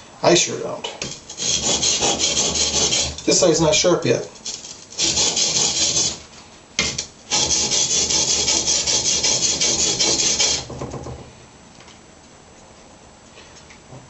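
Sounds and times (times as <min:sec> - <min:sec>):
sharpening stone scraping steel: 0:01.0 - 0:03.2.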